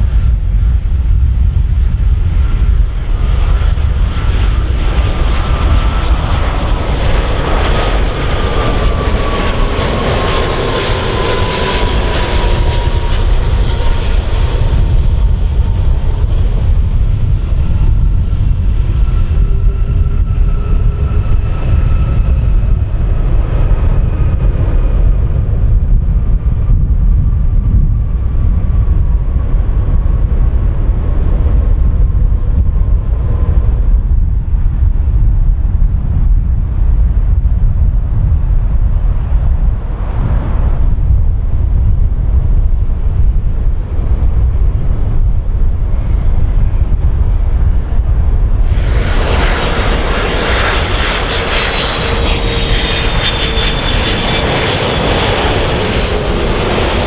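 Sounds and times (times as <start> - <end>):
low rumble: 0.0 - 57.0
jet engines whining: 2.0 - 25.3, 43.3 - 57.0.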